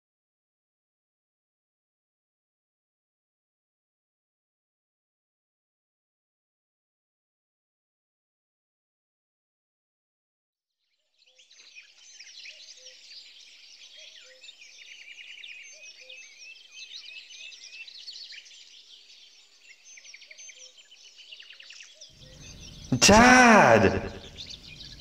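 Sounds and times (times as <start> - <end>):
small birds chirping: 11.2 - 25.0.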